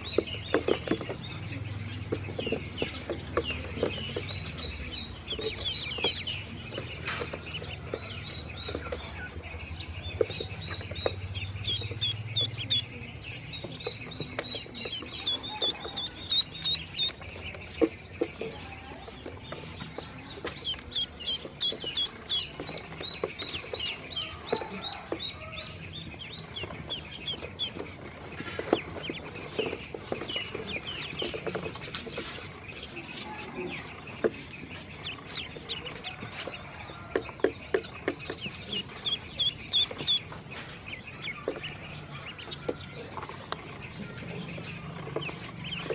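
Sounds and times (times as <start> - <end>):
ducklings peeping: 0.0 - 45.9.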